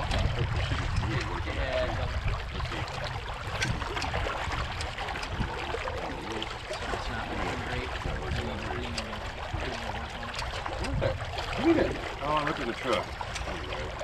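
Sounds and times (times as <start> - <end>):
water sloshing: 0.0 - 14.0
wind rumbling on microphone: 0.0 - 14.0
faint voices: 5.9 - 14.0.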